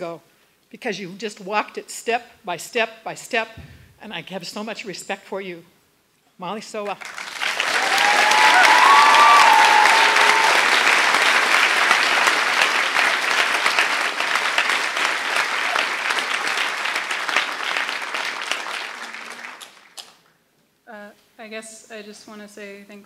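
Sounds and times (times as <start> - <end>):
audience applauding: 7.0 - 20.1.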